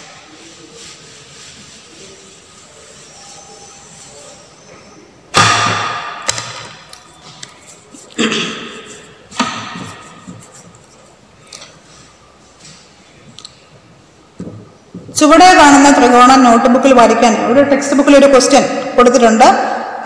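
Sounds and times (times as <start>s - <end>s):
loud ringing knocks on hard object: 5.3s - 6.6s.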